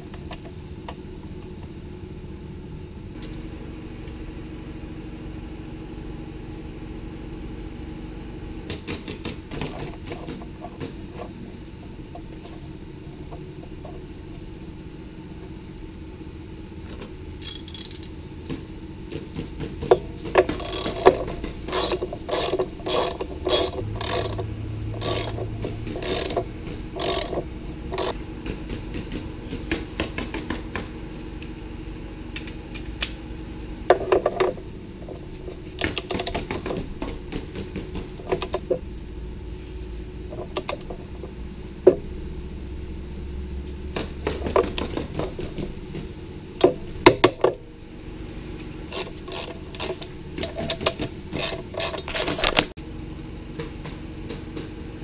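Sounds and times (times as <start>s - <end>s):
ratchet wrench clicking: 17.4s - 18.1s, 20.5s - 28.2s, 48.9s - 50.7s, 51.4s - 52.5s.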